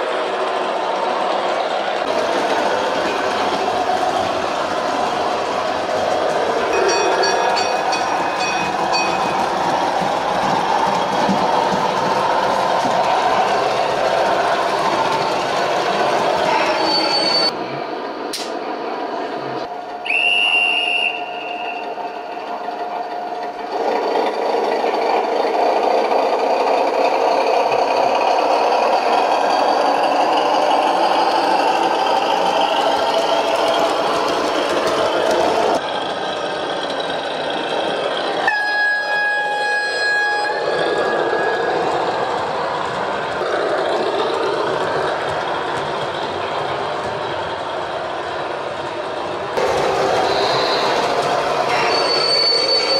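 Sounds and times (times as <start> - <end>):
model train wheels on track: 0.0 - 18.7, 19.4 - 52.9
train horn blast: 38.5 - 40.7.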